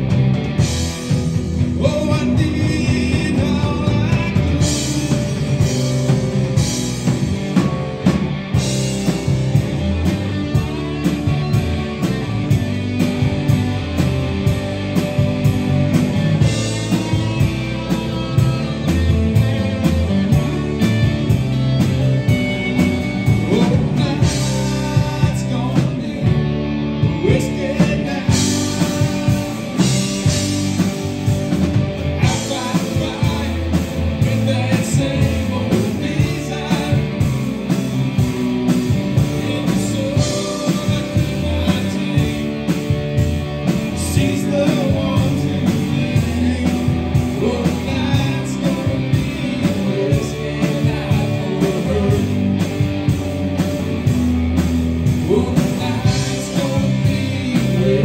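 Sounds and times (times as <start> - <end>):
drum kit: 0.0 - 58.0
electric bass: 0.0 - 58.0
electric guitars: 0.0 - 58.0
man singing lead: 1.4 - 7.6, 22.3 - 53.0, 55.0 - 58.0.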